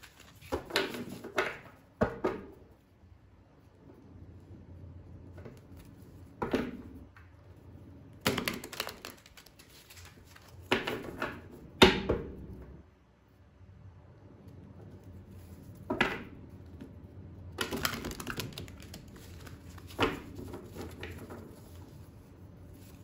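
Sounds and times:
cards being shuffled: 0.0 - 1.8, 8.2 - 11.4, 17.6 - 23.0.

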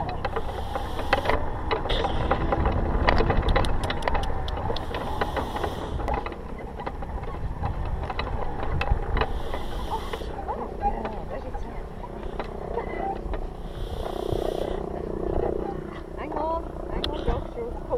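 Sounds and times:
scattered clicks and rattles: 0.0 - 14.2
wind buffeting microphone: 0.0 - 17.9.

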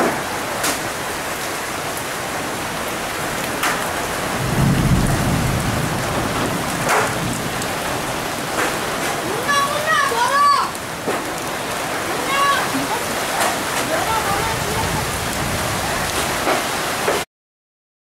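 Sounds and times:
heavy rain pouring: 0.0 - 17.3
thunder rumble: 3.3 - 9.9, 10.9 - 16.6
hailstones knocking: 3.4 - 17.2.

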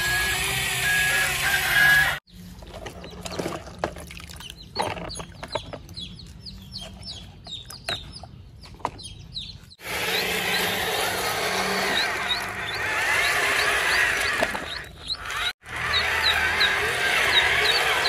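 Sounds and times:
chickens clucking and chirping: 4.5 - 18.0.

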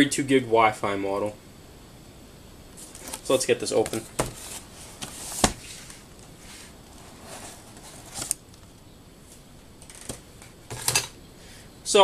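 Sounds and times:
cardboard box rustling: 2.8 - 6.0, 6.9 - 8.4
cardboard snap: 3.8 - 5.7.

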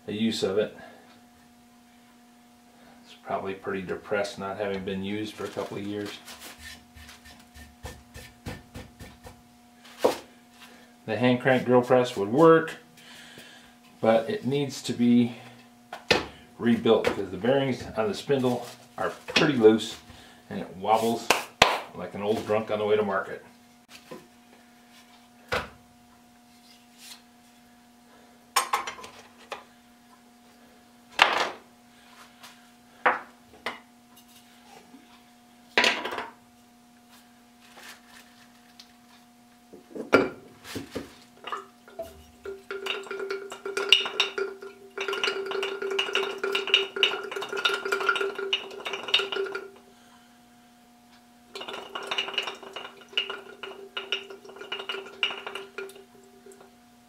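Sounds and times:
wooden parts knocking on workbench: 31.2 - 31.6, 35.8 - 36.3
glass jar rattling and clinking: 41.5 - 49.7, 51.6 - 56.6.

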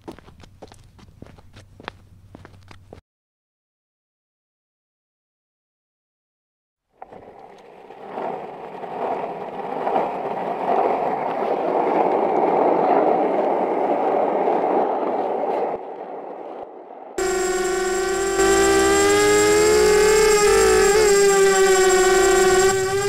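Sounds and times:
skateboard wheels rolling: 7.0 - 23.0.

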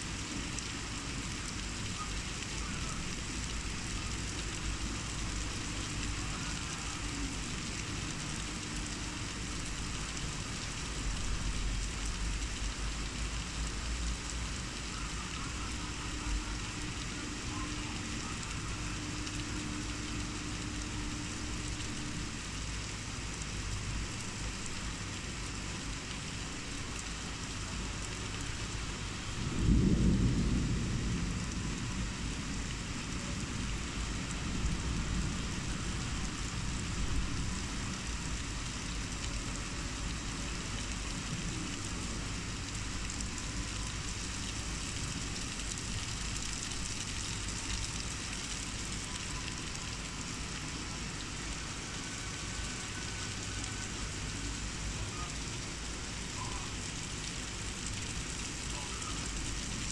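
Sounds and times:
heavy rain pouring: 0.0 - 59.9
thunder rumble: 28.6 - 38.1.

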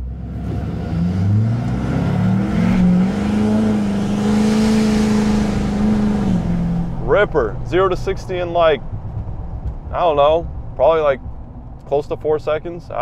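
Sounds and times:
diesel engine revving: 0.0 - 13.0.

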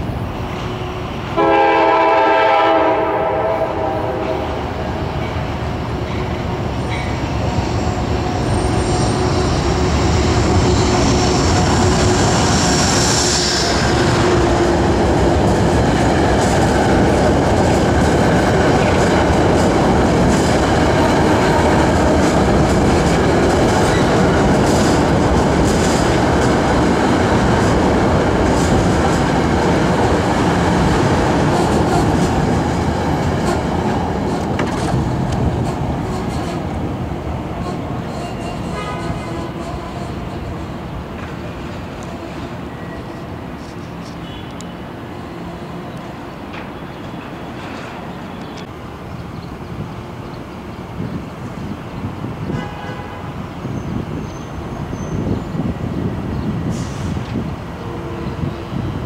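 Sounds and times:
train wheels on rails: 0.0 - 59.0
train horn: 0.8 - 4.7, 13.4 - 14.8, 20.9 - 22.0, 37.6 - 40.6, 52.4 - 53.4, 57.8 - 58.8
clicking over rail joints: 33.4 - 36.7.

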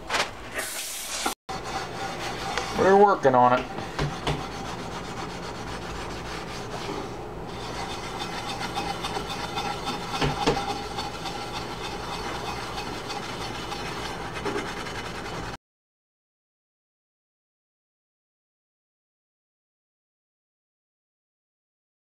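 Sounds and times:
steel wool scrubbing a skillet: 1.1 - 15.6.

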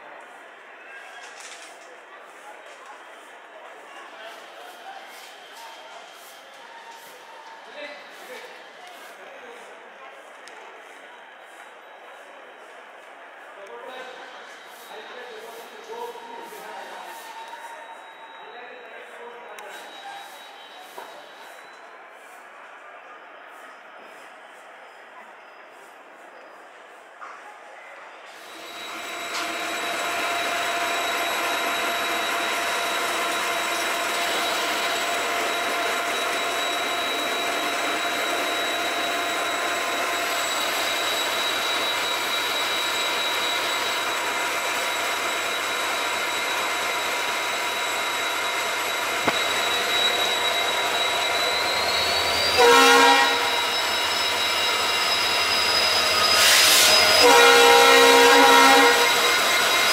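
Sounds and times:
diesel locomotive idling: 28.4 - 59.9
train air horn blasts: 52.4 - 53.8, 56.3 - 59.4.

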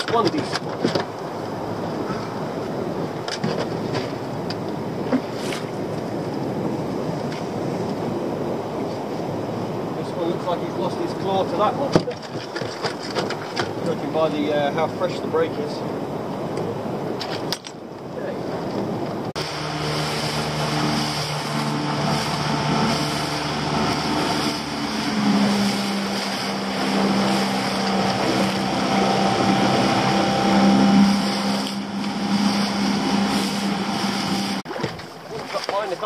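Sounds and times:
outboard motor running: 18.4 - 36.0.

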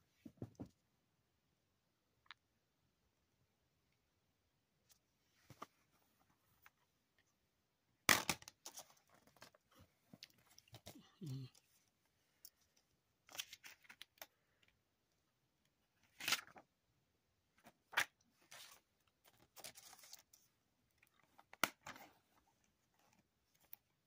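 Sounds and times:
faint rustles and clicks of case: 4.8 - 7.4, 8.2 - 14.8, 17.5 - 24.0.

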